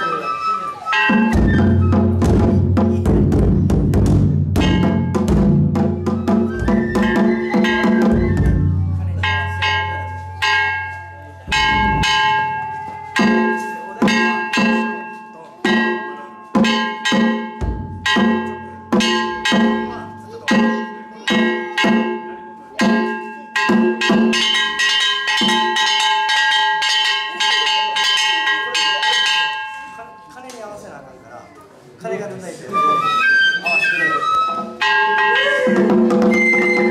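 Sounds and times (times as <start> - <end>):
drums struck with sticks: 1.0 - 26.0
metal gongs ringing: 4.6 - 30.2.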